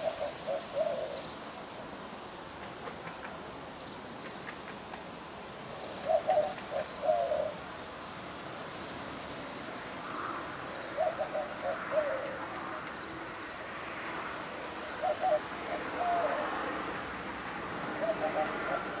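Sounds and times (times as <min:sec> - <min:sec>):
dove cooing: 0:00.0 - 0:01.3, 0:06.0 - 0:07.6, 0:10.2 - 0:12.6, 0:14.8 - 0:16.7, 0:17.9 - 0:19.0.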